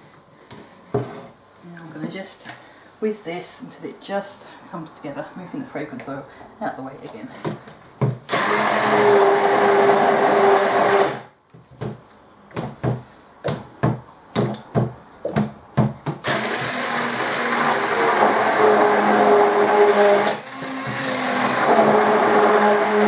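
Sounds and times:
stick blender whizzing: 0:08.3 - 0:11.3, 0:16.2 - 0:23.0.

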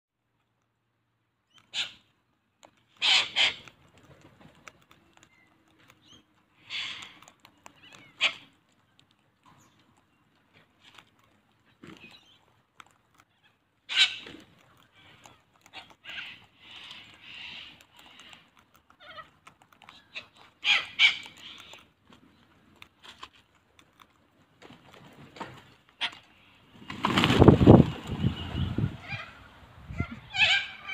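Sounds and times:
small clicks: 0:01.4 - 0:27.2
beaks cracking seed: 0:01.5 - 0:27.5
cockatoo screeches: 0:03.0 - 0:03.7, 0:06.6 - 0:08.5, 0:13.9 - 0:14.4, 0:20.2 - 0:21.7, 0:29.0 - 0:30.9
wings flapping: 0:24.6 - 0:29.2.

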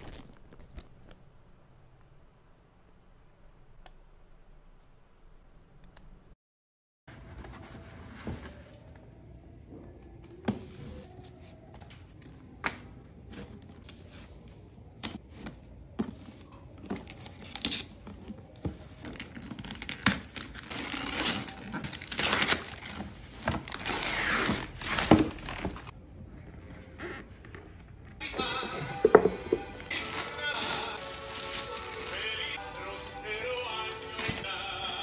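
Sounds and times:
wrapping paper tearing: 0:00.0 - 0:01.2, 0:19.2 - 0:25.9, 0:29.8 - 0:35.0.

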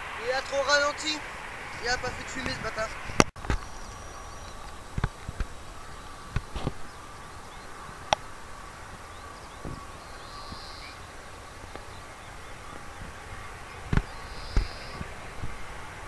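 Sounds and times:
distant jet plane whine: 0:00.0 - 0:16.0
outdoor hiss: 0:00.0 - 0:16.0.

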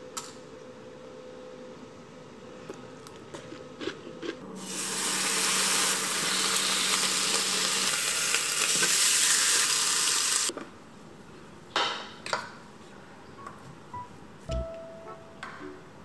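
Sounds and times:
food sizzling in a pan: 0:04.6 - 0:10.5.

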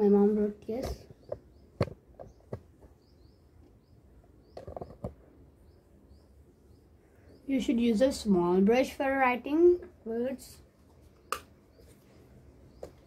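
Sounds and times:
objects knocking and clicking: 0:04.6 - 0:05.2.

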